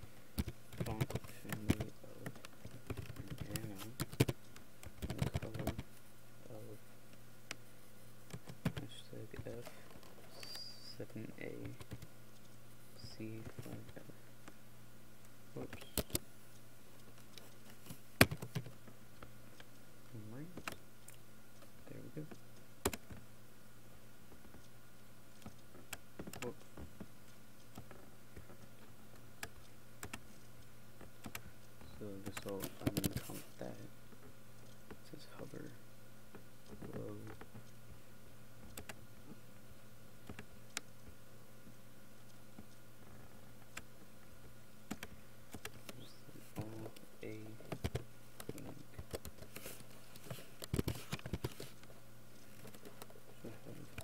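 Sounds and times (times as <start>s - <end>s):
low electrical hum: 0.0s - 54.0s
mouse and keyboard clicks: 0.4s - 5.9s, 15.7s - 16.2s, 32.3s - 33.5s, 47.6s - 51.9s.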